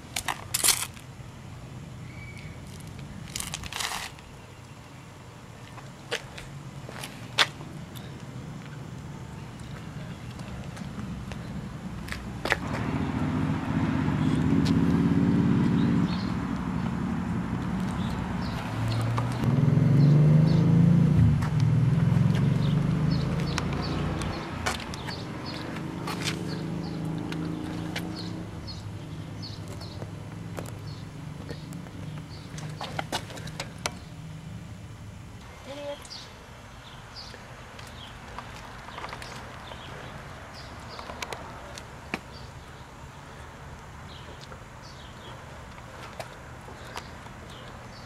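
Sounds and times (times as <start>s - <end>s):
small birds chirping: 2.0s - 3.2s, 15.6s - 16.9s, 17.8s - 20.7s, 22.6s - 34.2s, 35.5s - 48.0s
vehicle engine running: 8.5s - 35.2s.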